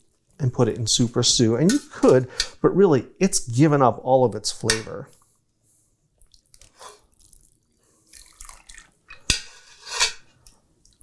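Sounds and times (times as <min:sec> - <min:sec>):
stock dripping and splashing: 0:06.2 - 0:09.2.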